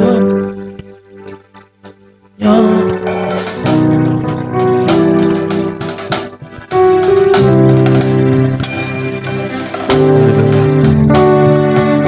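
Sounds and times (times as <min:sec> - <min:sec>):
keyboard playing slow chords: 0:00.0 - 0:12.0.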